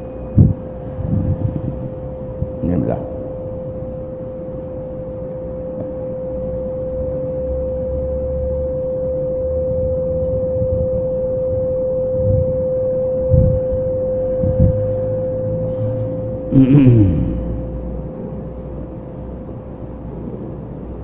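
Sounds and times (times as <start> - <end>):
soft low murmurs: 0.0 - 3.8, 15.6 - 21.0
low rumble: 0.0 - 6.5, 9.6 - 20.6
high-pitched electrical hum: 0.0 - 21.0.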